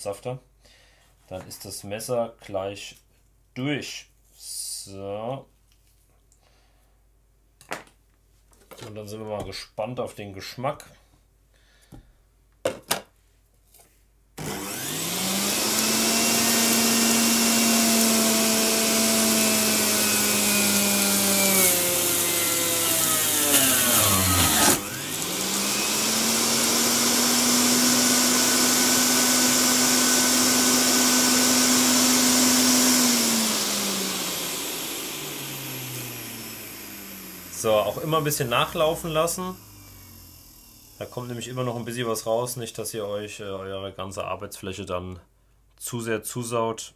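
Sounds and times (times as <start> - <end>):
fruit being shredded: 14.4 - 41.2
juicer motor whining: 14.4 - 41.6.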